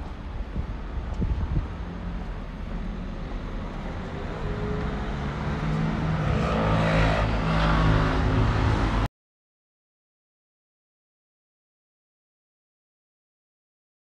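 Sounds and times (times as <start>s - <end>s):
vehicle rumble and hum: 0.0s - 9.1s.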